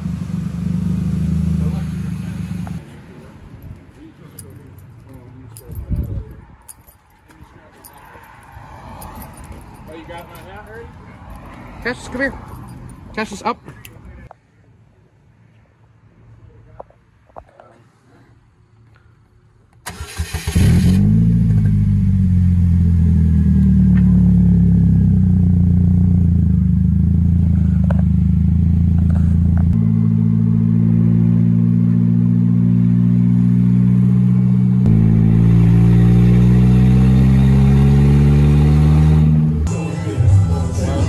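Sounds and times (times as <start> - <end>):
engine starting and running: 19.8 - 25.3.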